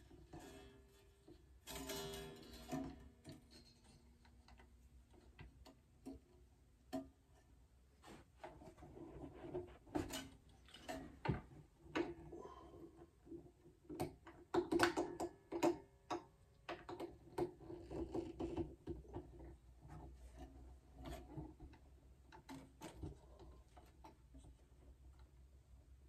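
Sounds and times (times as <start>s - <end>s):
guitar string rattling: 0.2s - 6.2s
clicks and taps at tuning pegs: 13.9s - 17.6s.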